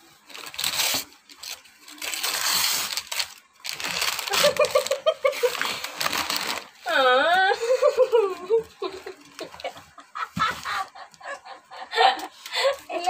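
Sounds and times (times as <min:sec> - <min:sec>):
paper crinkling and rustling: 0:00.0 - 0:06.8, 0:08.1 - 0:10.9
person laughing: 0:04.2 - 0:05.8, 0:07.2 - 0:13.0.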